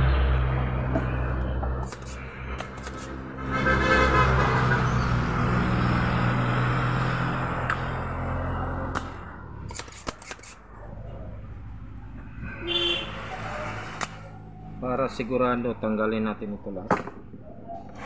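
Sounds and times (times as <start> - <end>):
motor vehicle passing: 0.0 - 14.8
sharp clicks: 1.8 - 3.2, 8.9 - 10.6.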